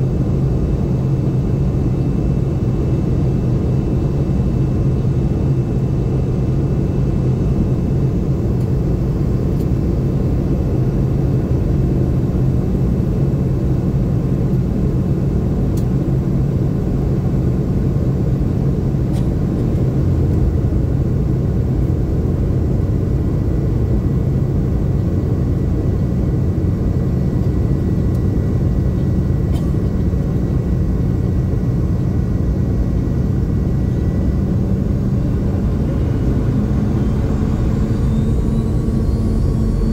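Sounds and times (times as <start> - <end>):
jet engine drone: 0.0 - 39.9
faint high whine: 16.2 - 39.9.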